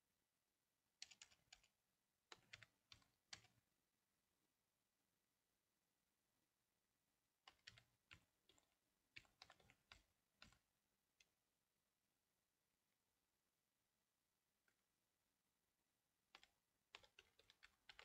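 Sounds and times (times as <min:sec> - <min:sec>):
keyboard typing: 0:01.0 - 0:03.6, 0:07.4 - 0:11.3, 0:16.3 - 0:18.0.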